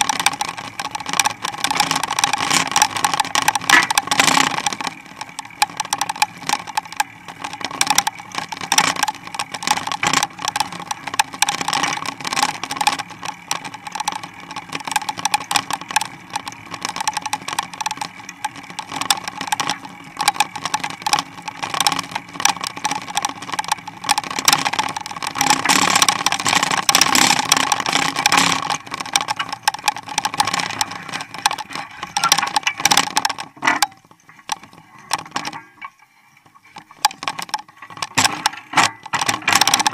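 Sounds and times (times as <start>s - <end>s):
bike rattling and clattering: 0.0s - 39.9s
steady hum: 0.0s - 39.9s.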